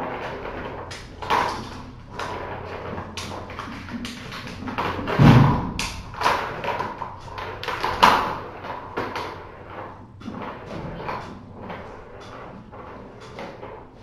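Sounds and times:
heavy thump: 5.1 - 5.8.

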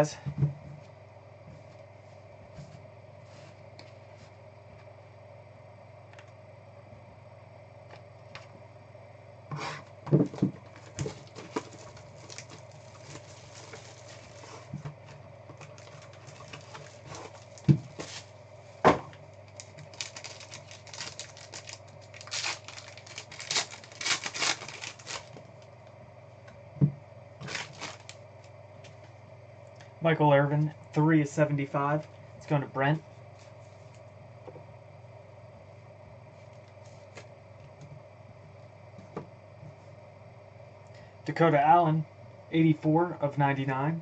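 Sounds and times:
foil wrapper tearing and crinkling: 10.8 - 14.8, 15.6 - 18.3, 19.5 - 25.4, 27.4 - 28.2.

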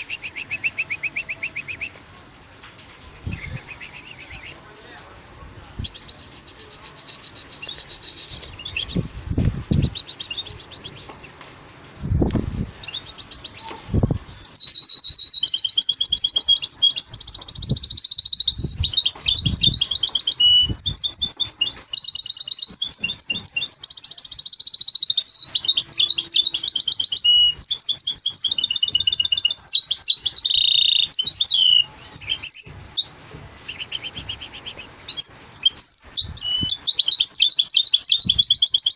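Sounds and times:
caged songbird singing trills: 0.0 - 2.0, 3.2 - 4.6, 5.8 - 11.4, 12.2 - 38.9
low thumps: 12.0 - 12.8.

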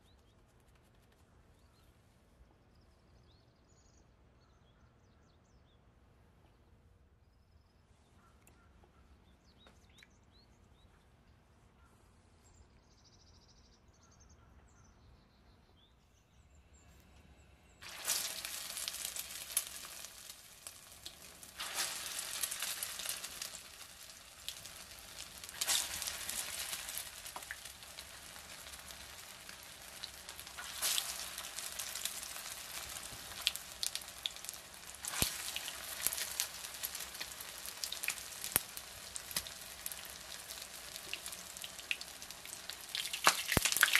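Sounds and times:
patties sizzling in hot oil: 17.8 - 43.9.

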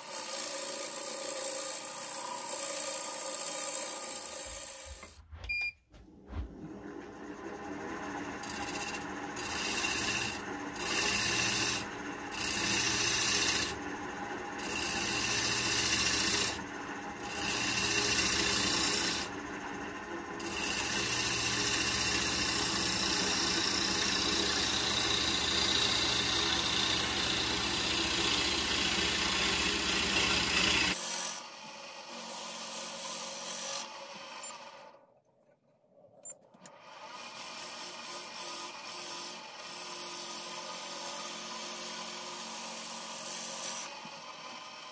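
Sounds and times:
lathe gouge cutting wood: 0.0 - 5.2, 6.9 - 34.9, 36.7 - 44.9
lathe motor hum: 6.3 - 32.2.

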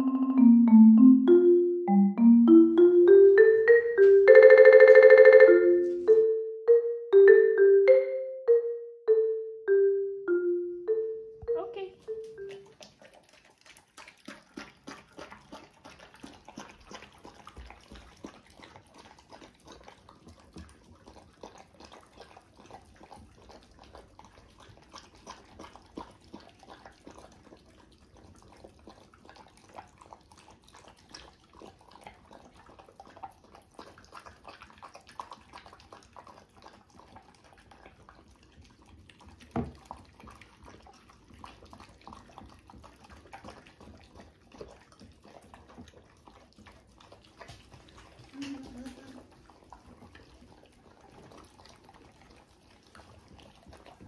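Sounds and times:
dogs lapping from bowls: 12.0 - 54.0.

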